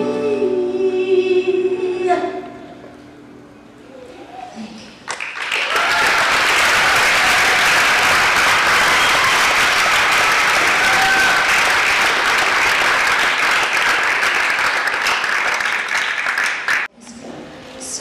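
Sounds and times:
audience applauding: 5.0s - 16.9s.

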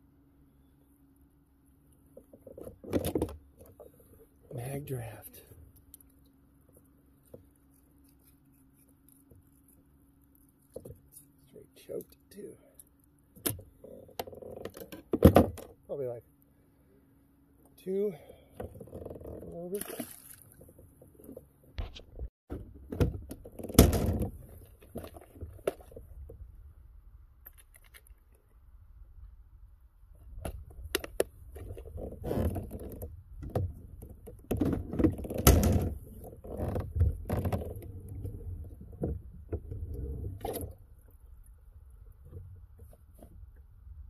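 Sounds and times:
fishing gear knocks and rattles: 30.4s - 39.7s.

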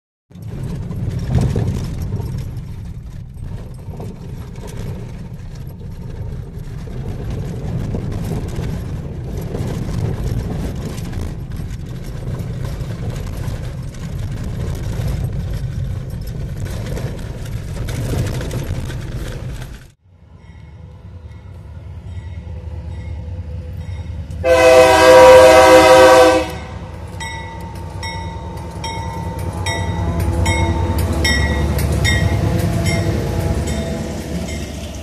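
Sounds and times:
car engine and tyre rumble: 0.3s - 20.0s.

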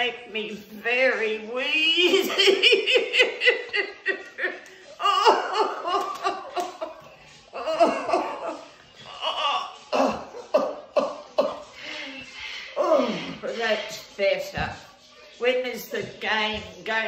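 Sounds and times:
hearty laughter: 2.1s - 11.8s.

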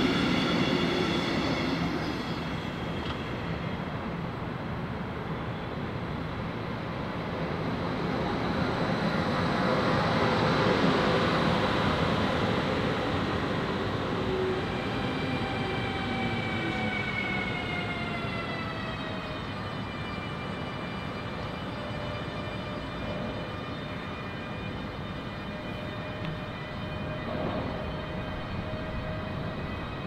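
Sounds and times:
train wheels rushing on rails: 0.0s - 30.0s
falling multi-tone whine: 7.4s - 30.0s.

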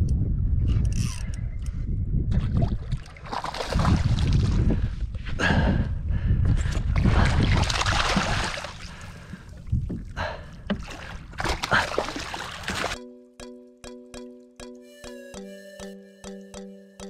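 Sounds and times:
fish splashing in water: 3.0s - 4.4s, 7.4s - 9.1s
music: 13.0s - 17.0s.

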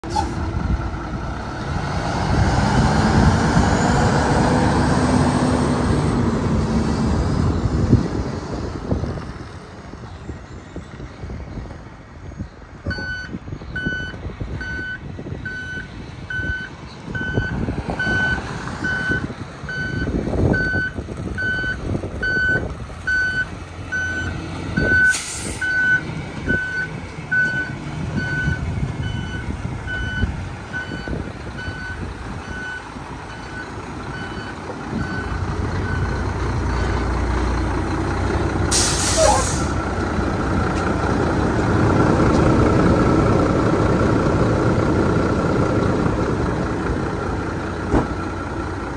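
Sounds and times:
diesel truck engine running: 0.0s - 48.9s
reversing alarm beeping: 12.9s - 36.2s
air brake hisses: 25.1s - 25.7s, 38.7s - 39.8s.

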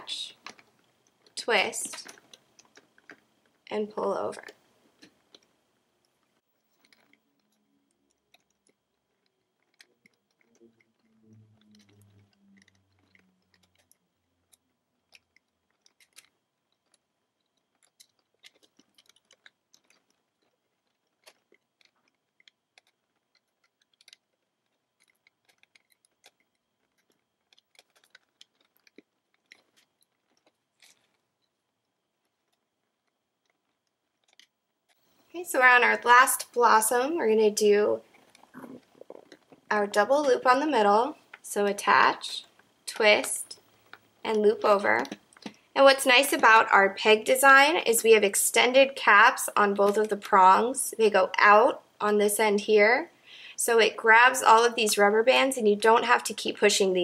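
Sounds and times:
rubber bands clicking on pegs: 0.1s - 3.7s, 4.4s - 50.4s
faint low hum: 34.9s - 57.0s.

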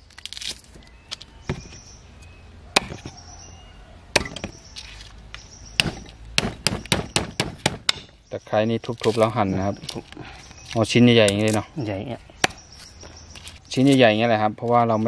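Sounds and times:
knife chopping on wooden block: 2.8s - 3.2s, 5.8s - 8.1s.

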